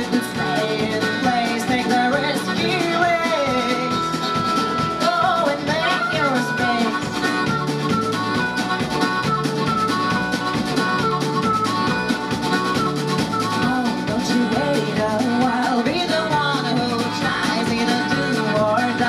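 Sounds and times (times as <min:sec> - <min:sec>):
woman singing: 0:00.0 - 0:04.3, 0:04.9 - 0:07.5, 0:13.5 - 0:19.0
double bass: 0:00.0 - 0:19.0
drum kit: 0:00.0 - 0:19.0
guitar: 0:00.0 - 0:19.0
harmonica: 0:00.0 - 0:19.0.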